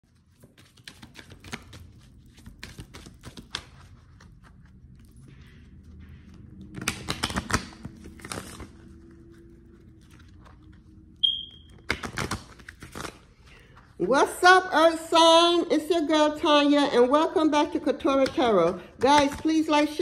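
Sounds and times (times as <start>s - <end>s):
cards being shuffled: 0.3s - 5.5s, 6.6s - 13.9s.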